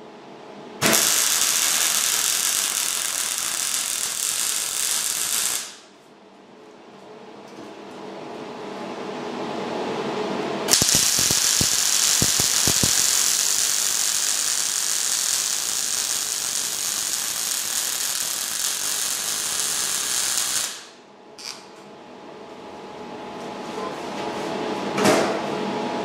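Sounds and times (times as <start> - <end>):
welder arc crackling and hissing: 0.8 - 5.9, 10.7 - 21.7.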